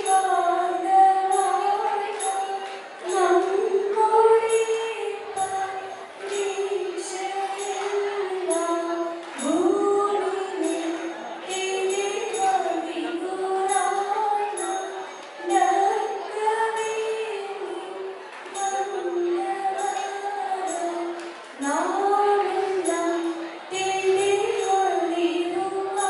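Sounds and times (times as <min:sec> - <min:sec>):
jingling percussion beat: 0:00.0 - 0:03.6, 0:04.4 - 0:09.8, 0:10.5 - 0:12.8, 0:13.6 - 0:17.0, 0:18.4 - 0:22.0
woman singing: 0:00.0 - 0:26.0.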